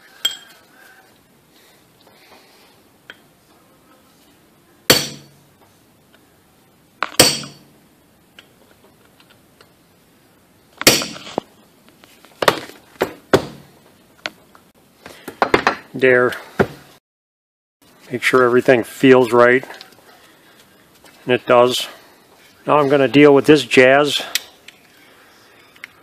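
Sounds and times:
steel tools striking metal: 0:00.2 - 0:00.6, 0:07.2 - 0:07.7.

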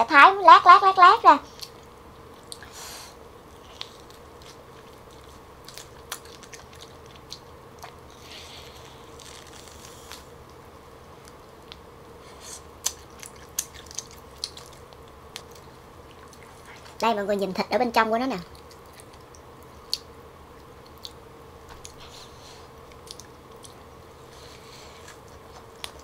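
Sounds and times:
close-miked chewing meat: 0:03.5 - 0:10.6, 0:12.6 - 0:17.0, 0:18.5 - 0:26.0
wet mouth clicks and smacks: 0:12.8 - 0:15.6.

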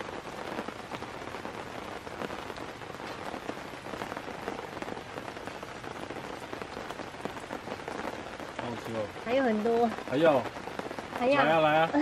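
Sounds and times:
rain pattering: 0:00.0 - 0:12.0.

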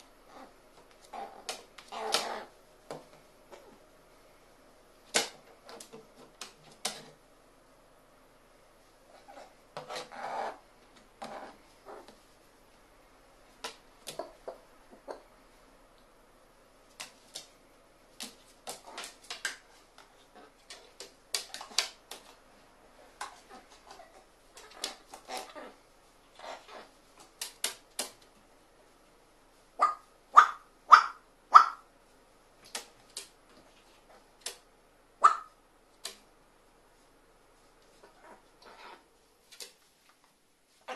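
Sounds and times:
bird claws and bill tapping: 0:18.2 - 0:22.4, 0:27.2 - 0:28.3.

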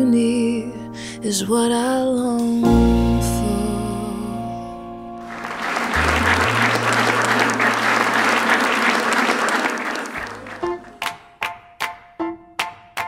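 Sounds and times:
evenly spaced musical notes: 0:05.2 - 0:09.0, 0:10.2 - 0:13.0
crowd applauding: 0:05.2 - 0:11.2.

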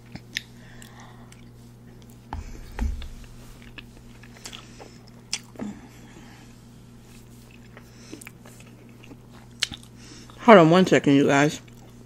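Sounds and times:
low steady hum: 0:00.0 - 0:09.9
chewing food with mouth smacks: 0:07.4 - 0:10.4, 0:11.6 - 0:12.0.

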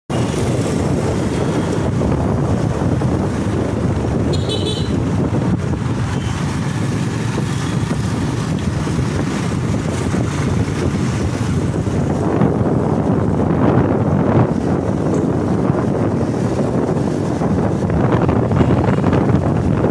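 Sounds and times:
motorcycle engine and road rumble: 0:00.1 - 0:19.9
wind rush on microphone: 0:00.1 - 0:19.9
vehicle horn toot: 0:04.3 - 0:05.0.

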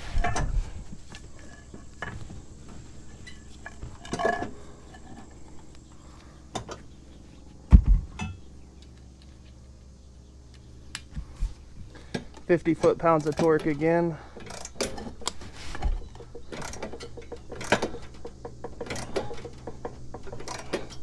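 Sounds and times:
metal clinks and knocks: 0:01.4 - 0:05.7, 0:12.1 - 0:21.0
heavy thump: 0:07.7 - 0:08.2.

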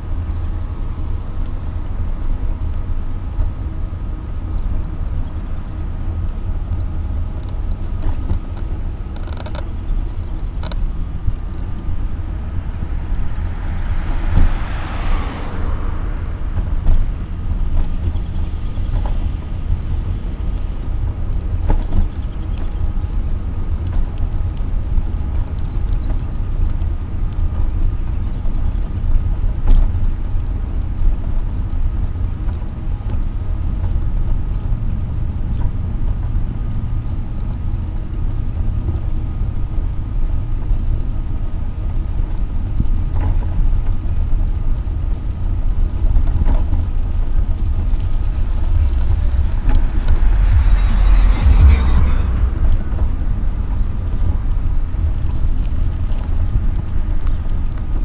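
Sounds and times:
rushing noise: 0:12.1 - 0:19.0, 0:46.7 - 0:57.5
wheelchair wheels rumbling: 0:28.9 - 0:58.0
faint steady whine: 0:45.1 - 0:58.0.

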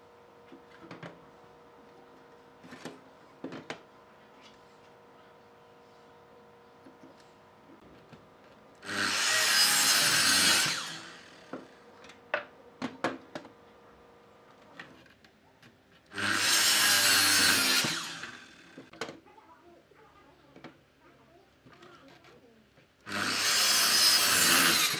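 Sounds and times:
miter saw cutting wood: 0:08.8 - 0:11.7, 0:16.1 - 0:18.9, 0:23.1 - 0:24.9.

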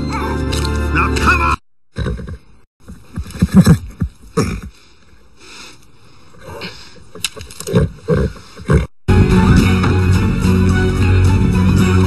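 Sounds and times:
guitar-driven music: 0:09.1 - 0:12.0.

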